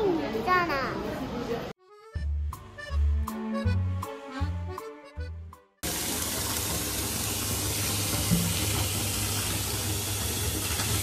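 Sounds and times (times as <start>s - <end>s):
background music: 1.8s - 5.8s.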